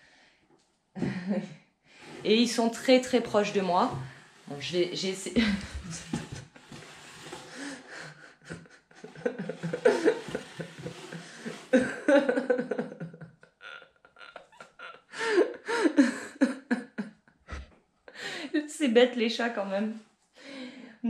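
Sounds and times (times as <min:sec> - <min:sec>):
woman laughing: 0:05.1 - 0:06.5, 0:07.9 - 0:18.6.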